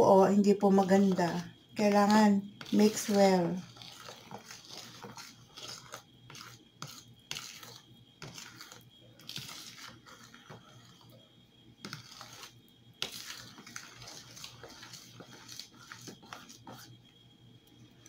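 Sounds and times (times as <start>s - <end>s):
spoon scraping plastic bowl: 0.0s - 11.2s, 11.8s - 17.1s.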